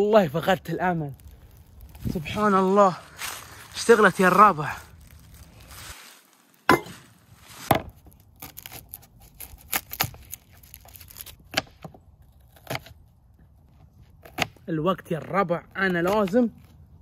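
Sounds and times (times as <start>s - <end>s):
sharp knocks and cracks: 10.9s - 13.0s.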